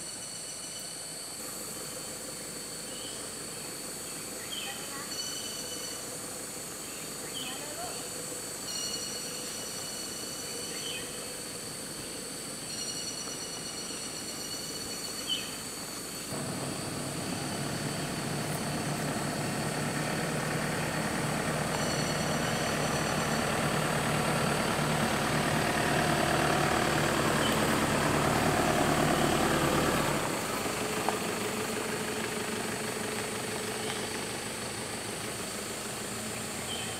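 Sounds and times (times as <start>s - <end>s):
vehicle engine running: 16.3s - 36.9s.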